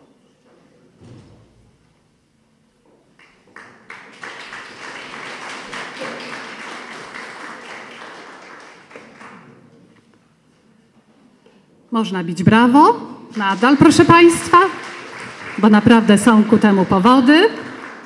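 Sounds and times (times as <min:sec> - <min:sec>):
audience applauding: 0:03.2 - 0:09.7, 0:13.4 - 0:18.0.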